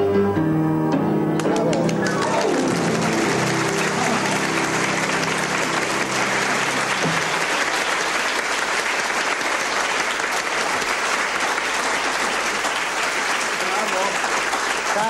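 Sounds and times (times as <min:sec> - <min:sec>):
audience applauding: 0:01.4 - 0:15.0.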